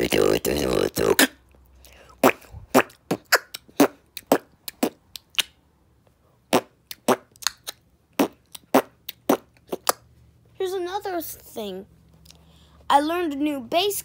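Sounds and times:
beatboxing mouth percussion: 0.0 - 5.6, 6.5 - 10.1.

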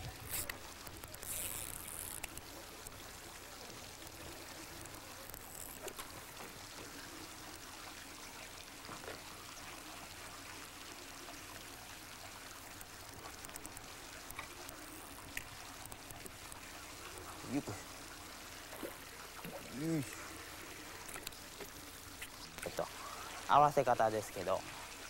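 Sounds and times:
faint ticks: 0.0 - 3.0, 12.6 - 17.4
outdoor background hiss: 0.0 - 25.0.

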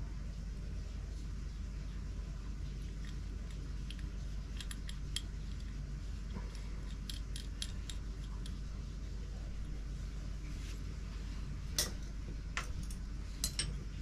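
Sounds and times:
low steady hum: 0.0 - 14.0
small parts clicking and tapping: 2.9 - 8.7.

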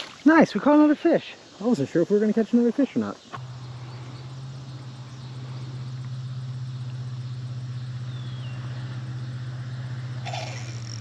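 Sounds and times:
low motor hum: 3.4 - 11.0.

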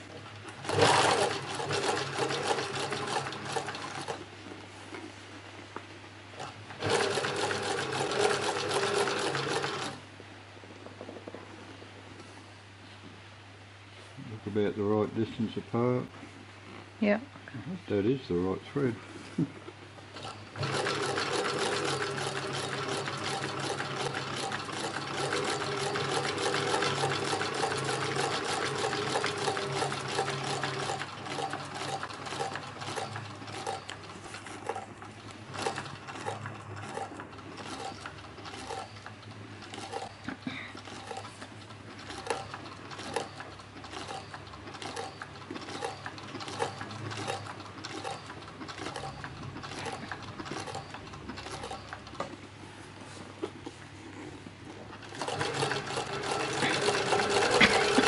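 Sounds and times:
sewing machine stitching leather: 0.0 - 4.3, 6.3 - 10.0, 20.1 - 52.5, 54.2 - 58.0
sewing machine stitch clicks: 35.5 - 40.2, 40.8 - 52.3, 55.0 - 58.0.

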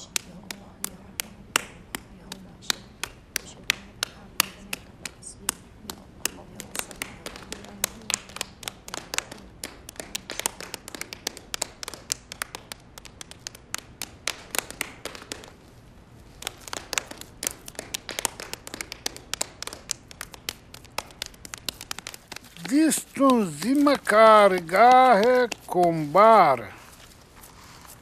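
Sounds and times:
hands patting wet clay: 0.0 - 15.6, 16.2 - 28.0.

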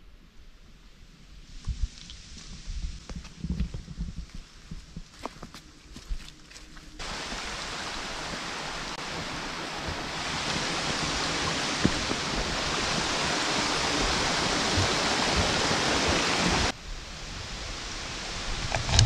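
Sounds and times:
stream water rushing: 7.0 - 19.0.

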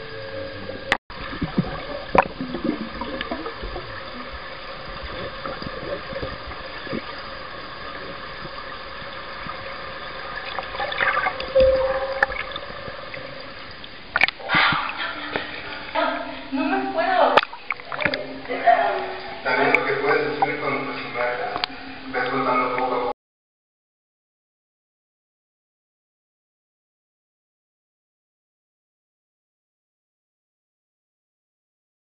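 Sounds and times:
underwater bubbling and gurgling: 0.0 - 16.5, 17.2 - 23.0
steady hum: 0.0 - 23.1.

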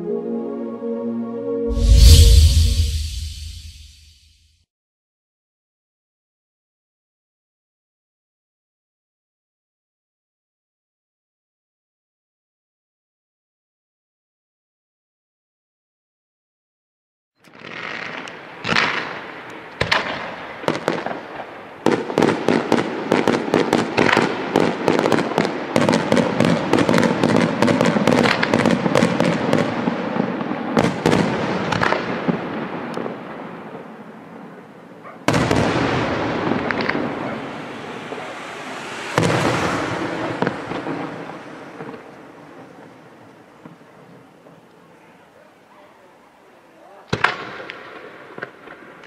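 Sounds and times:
firework crackling: 35.3 - 43.3.

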